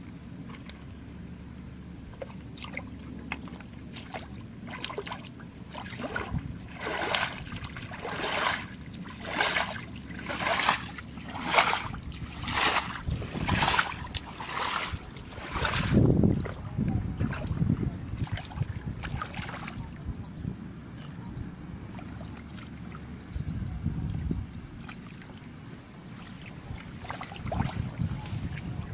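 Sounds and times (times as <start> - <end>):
footsteps splashing in muddy water: 2.2 - 20.0, 24.5 - 25.5, 26.1 - 28.9.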